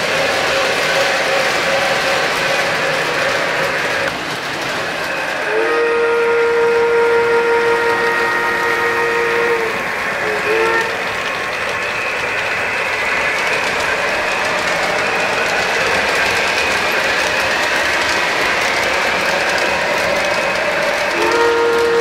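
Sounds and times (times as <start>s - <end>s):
model train wheels rattling: 0.0s - 22.0s
model train whistle: 5.4s - 11.1s, 21.0s - 22.0s.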